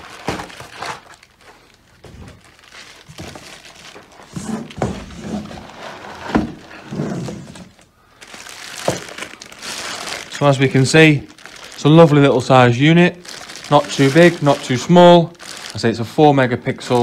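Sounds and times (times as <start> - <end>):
cardboard and plastic rustling: 0.0 - 17.0.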